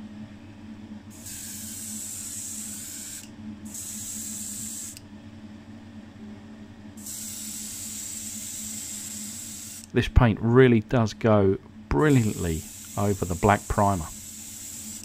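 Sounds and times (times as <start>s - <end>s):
steady low hum: 0.0s - 15.0s
airbrush hissing: 1.2s - 5.0s, 7.0s - 9.9s, 12.0s - 15.0s.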